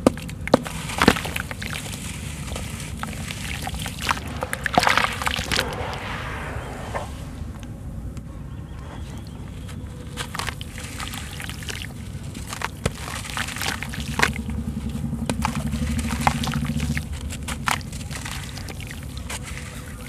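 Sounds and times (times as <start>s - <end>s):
low hum: 3.4s - 8.6s
wet cement lumps crumbling: 10.2s - 14.4s.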